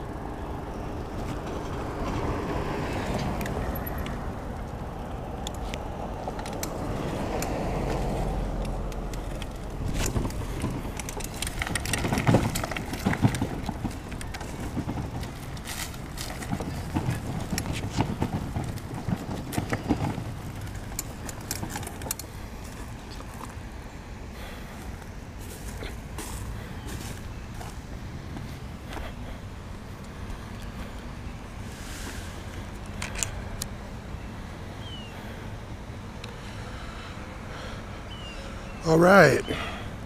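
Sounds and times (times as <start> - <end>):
bike rattling over bumpy dirt: 0.0 - 31.7
car passing: 0.0 - 40.0.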